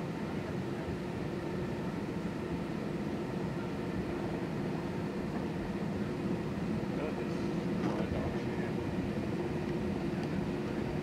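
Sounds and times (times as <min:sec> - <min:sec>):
airliner cabin engine noise: 0:00.0 - 0:11.0.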